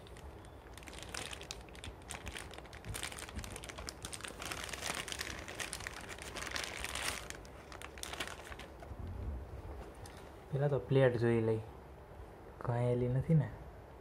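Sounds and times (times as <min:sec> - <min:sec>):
packaging crinkling: 0:00.0 - 0:09.0.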